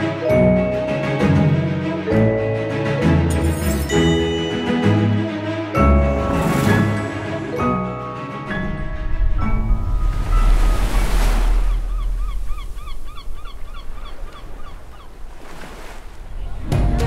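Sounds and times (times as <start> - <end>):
waves washing in: 5.7 - 17.0
birds calling: 10.5 - 16.1.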